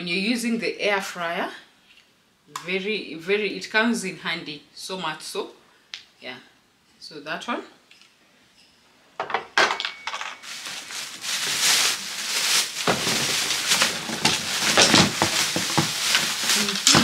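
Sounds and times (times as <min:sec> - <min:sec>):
items knocking and clattering: 0:09.2 - 0:17.0
packaging rustling and crinkling: 0:10.1 - 0:17.0.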